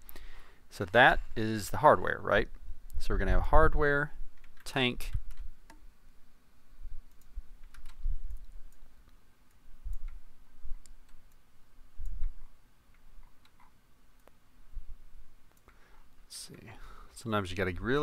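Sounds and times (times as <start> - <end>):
keyboard keystrokes: 7.1 - 8.6.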